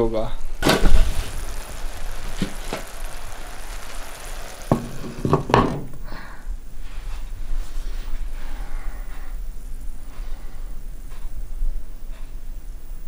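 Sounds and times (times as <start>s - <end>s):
oil and water boiling in pot: 0.4s - 7.9s.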